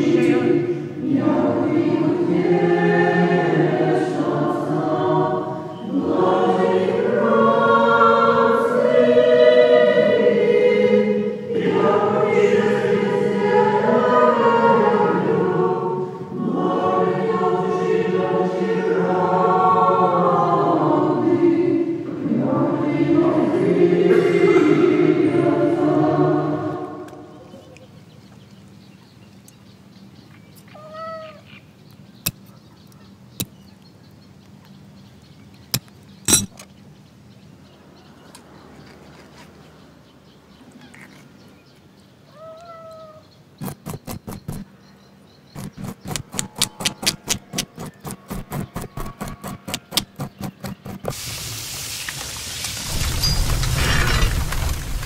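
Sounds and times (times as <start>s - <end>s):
cat meowing: 30.7s - 31.5s, 42.3s - 43.2s
knife scraping fish scales: 45.6s - 51.1s
fish sizzling in frying pan: 51.1s - 52.9s.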